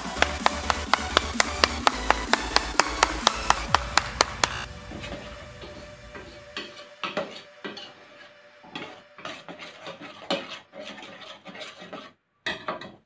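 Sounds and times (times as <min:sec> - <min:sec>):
spoon stirring and scraping pot: 0:06.6 - 0:13.0.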